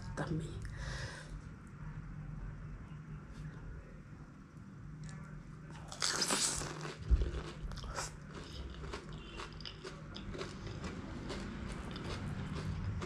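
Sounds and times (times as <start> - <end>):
crunchy chewing: 5.0 - 13.0.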